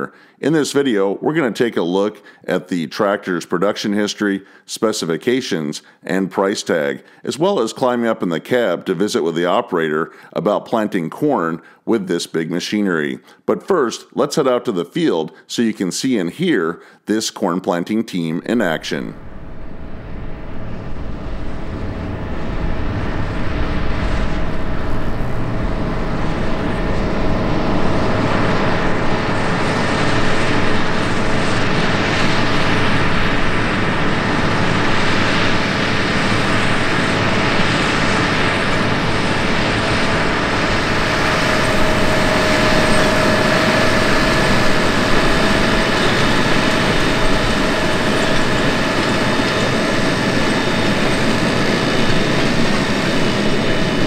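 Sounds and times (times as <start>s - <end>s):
tractor engine drone: 18.5s - 54.0s
whining tones: 19.2s - 54.0s.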